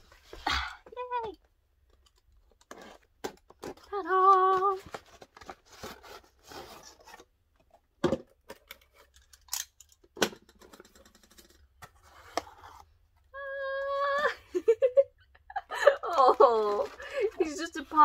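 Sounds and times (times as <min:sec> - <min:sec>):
cardboard and paper rustling: 0:02.4 - 0:07.7, 0:11.2 - 0:13.2, 0:15.8 - 0:18.0.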